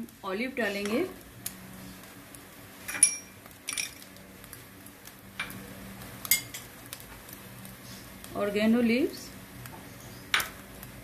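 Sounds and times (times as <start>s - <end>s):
kitchenware clinking: 2.9s - 4.1s.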